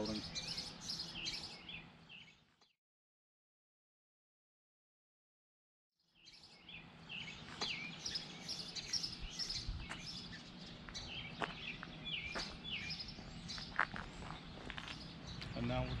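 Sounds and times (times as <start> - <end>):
low outdoor background noise: 0.0 - 2.5, 6.2 - 16.0
small birds chirping: 0.0 - 2.7, 6.0 - 16.0.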